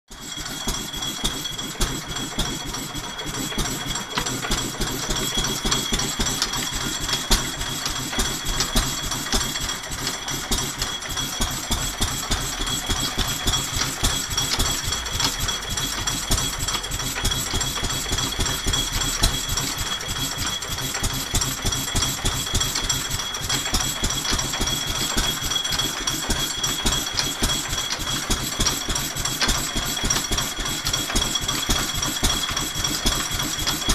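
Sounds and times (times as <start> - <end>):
power hacksaw clattering: 0.1 - 33.9.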